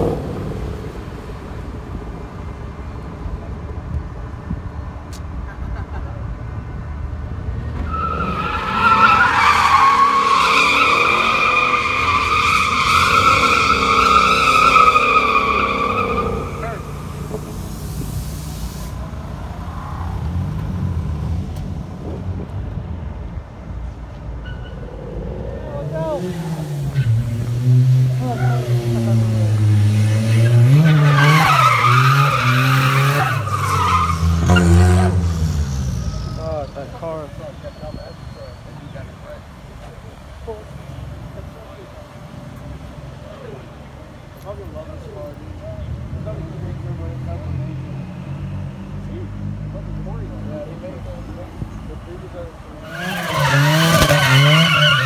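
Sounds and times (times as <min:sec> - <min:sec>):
car engine rumble: 0:00.0 - 0:55.0
tyres screeching on asphalt: 0:07.2 - 0:22.1, 0:23.8 - 0:55.0
tyres squealing: 0:07.8 - 0:17.4, 0:30.3 - 0:39.2, 0:52.8 - 0:55.0
car engine revving hard: 0:26.3 - 0:36.2, 0:52.9 - 0:55.0.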